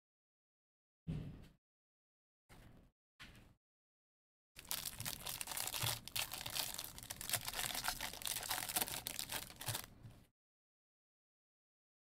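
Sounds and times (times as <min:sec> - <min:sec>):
wrapper tearing and crinkling: 0:04.6 - 0:09.9.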